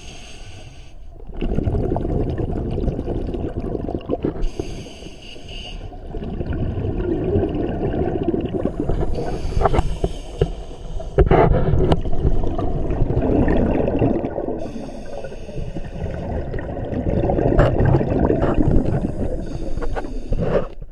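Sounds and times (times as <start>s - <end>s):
underwater regulator breathing: 0.0s - 1.1s, 4.2s - 6.0s, 8.5s - 12.6s, 14.5s - 16.6s, 17.6s - 20.9s
exhaled bubbles: 1.1s - 20.9s.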